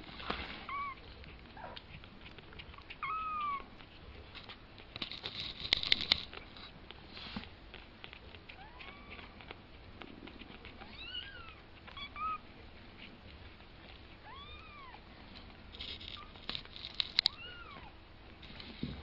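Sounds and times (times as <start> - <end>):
soft rustling: 0.0 - 19.0
kittens mewing: 2.8 - 3.8.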